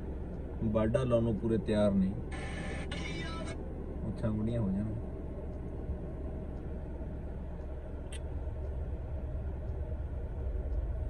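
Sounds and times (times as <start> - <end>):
light click: 7.6 - 8.8.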